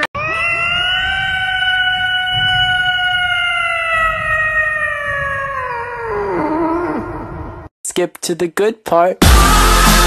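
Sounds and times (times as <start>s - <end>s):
cat meowing: 0.2s - 6.9s.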